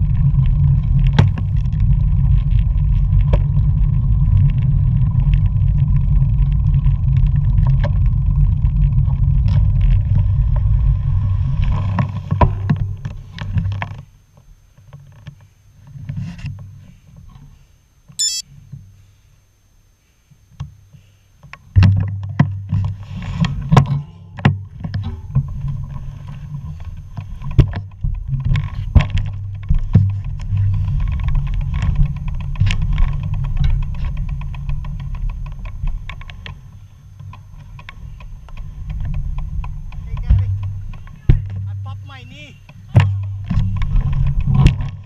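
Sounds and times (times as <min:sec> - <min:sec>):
bicycle knocks and rattles: 0:21.7 - 0:41.8.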